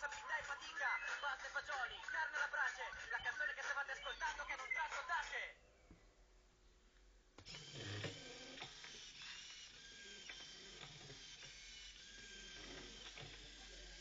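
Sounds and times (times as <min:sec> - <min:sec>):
small motors whirring: 0:07.4 - 0:14.0.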